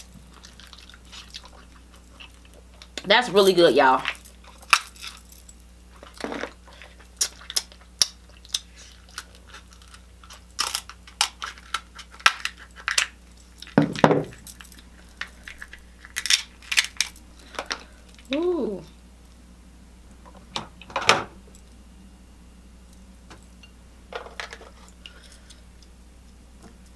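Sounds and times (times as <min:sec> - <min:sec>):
crunching and chewing: 0:00.0 - 0:03.0, 0:04.1 - 0:18.3
shells cracking: 0:14.6 - 0:18.3.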